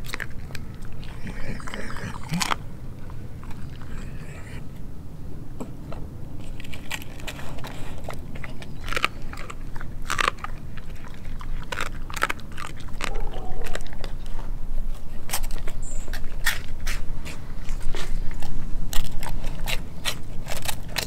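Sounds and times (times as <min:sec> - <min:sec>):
dog chewing with crunches: 0:00.0 - 0:21.0.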